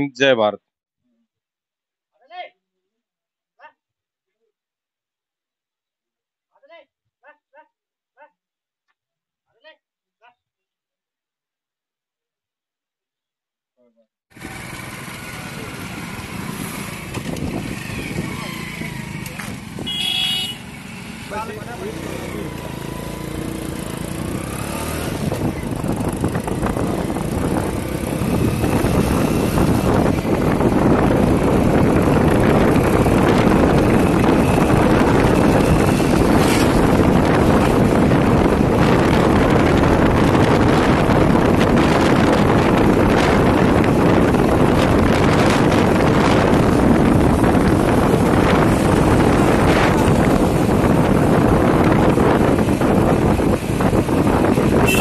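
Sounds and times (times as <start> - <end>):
motorcycle engines: 14.3 - 55.0
wind on microphone: 16.7 - 20.2, 24.1 - 55.0.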